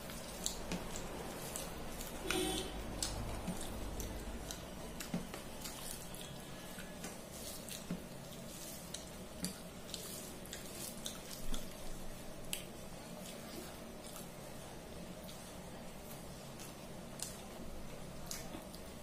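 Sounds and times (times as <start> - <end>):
food mixed by hand: 0.0 - 19.0.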